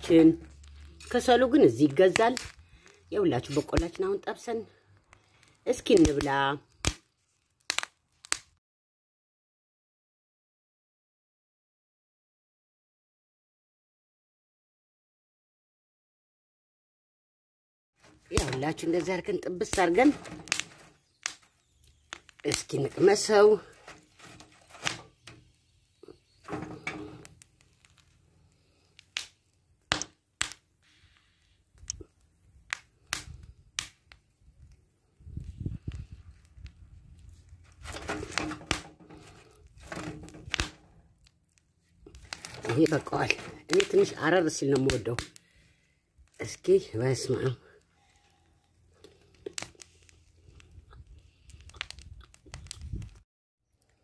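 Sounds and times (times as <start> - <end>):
corn cob crunching chewing: 50.4 - 52.7.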